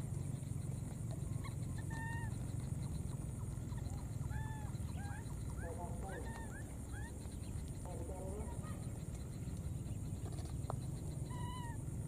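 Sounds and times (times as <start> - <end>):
baby monkey squeaky calls: 1.3 - 7.6, 11.0 - 11.8.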